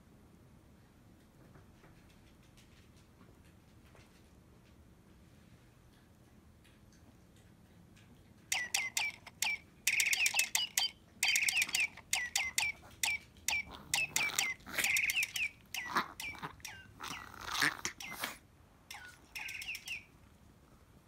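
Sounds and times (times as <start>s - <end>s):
electronic toy bird chirping: 8.5s - 20.2s.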